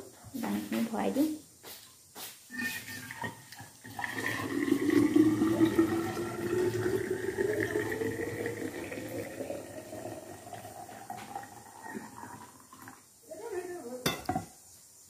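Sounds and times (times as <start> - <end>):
hot water pouring into a flask: 2.5 - 13.3.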